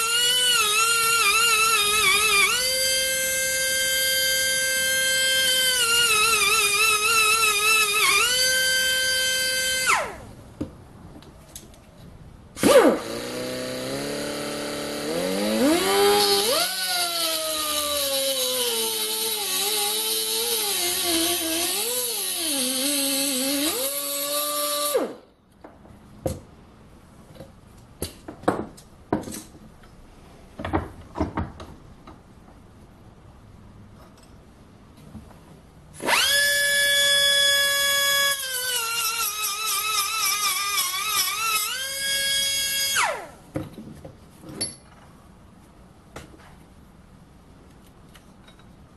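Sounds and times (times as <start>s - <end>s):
angle grinder cutting steel tube: 12.6s - 25.0s, 36.0s - 43.3s.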